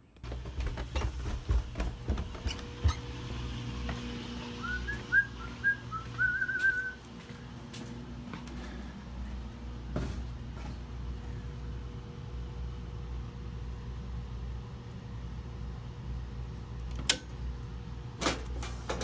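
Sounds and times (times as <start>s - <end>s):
footsteps on stairs: 0.2s - 10.9s
rising whistled notes with trill: 4.6s - 7.0s.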